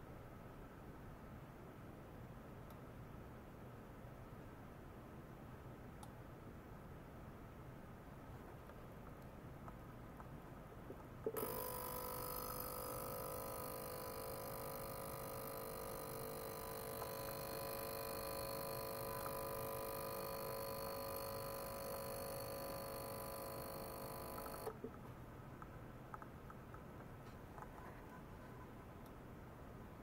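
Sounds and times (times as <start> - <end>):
ultrasonic cleaner hiss: 11.3 - 24.7
steady whining tones: 11.4 - 24.7.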